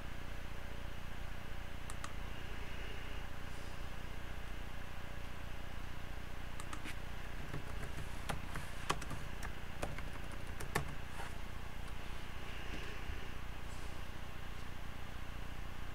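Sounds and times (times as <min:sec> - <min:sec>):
steady low hum: 0:00.0 - 0:15.9
keyboard and mouse clicks: 0:01.9 - 0:02.2, 0:06.6 - 0:11.0.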